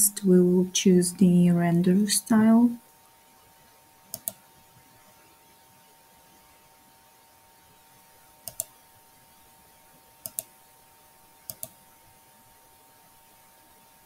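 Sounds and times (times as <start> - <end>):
faint steady hum: 0.0 - 14.0
computer mouse button clicks: 4.1 - 4.4, 8.5 - 8.7, 10.2 - 10.5, 11.5 - 11.8.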